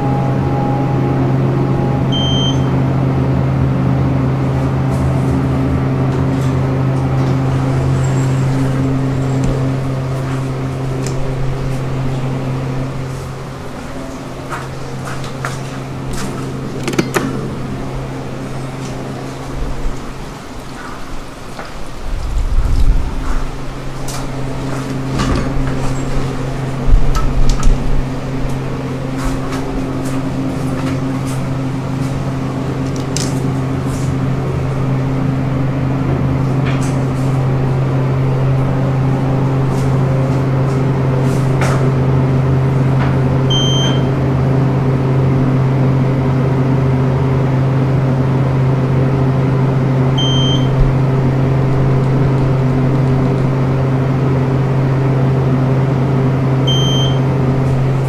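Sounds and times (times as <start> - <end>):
low electrical hum: 0.0 - 58.0
short high beeps: 1.7 - 2.8, 43.5 - 44.1, 50.2 - 50.7, 56.7 - 57.2.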